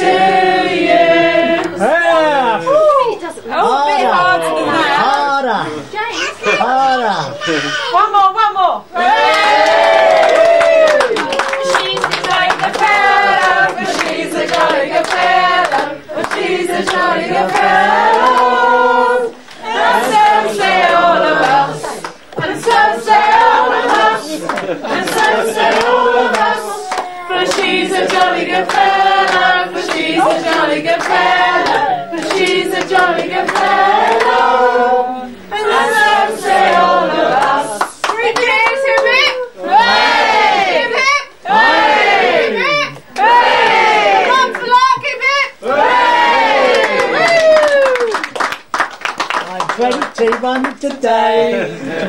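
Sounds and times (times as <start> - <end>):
group of people singing: 0.0 - 2.5, 9.0 - 47.2
people clapping: 3.8 - 5.4, 9.0 - 35.0, 35.7 - 40.8, 42.6 - 51.2.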